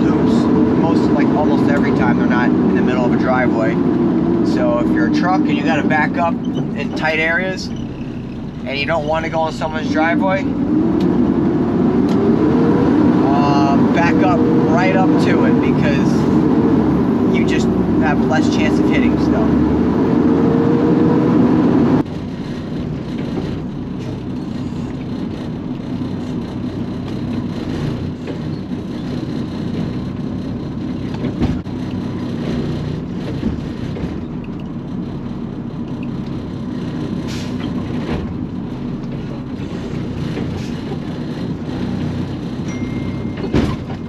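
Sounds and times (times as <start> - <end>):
garbage truck engine running: 0.0 - 44.0
lifting arm dumping a cart: 37.1 - 44.0
sharp metal clunks: 42.9 - 44.0.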